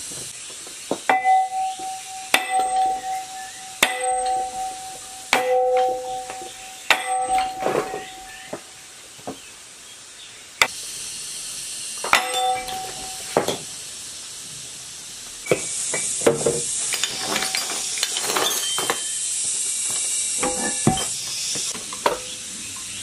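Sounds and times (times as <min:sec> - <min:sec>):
steady hiss: 0:00.0 - 0:23.0
sledgehammer striking metal: 0:01.1 - 0:08.5, 0:12.0 - 0:13.7.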